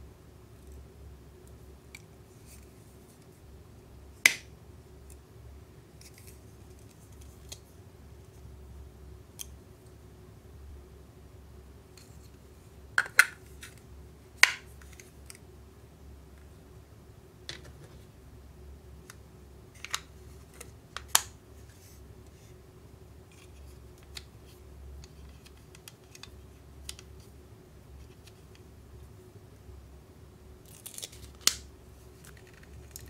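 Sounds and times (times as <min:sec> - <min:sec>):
plastic toy parts snapping: 0:04.3 - 0:04.5, 0:13.0 - 0:13.8, 0:14.4 - 0:15.4.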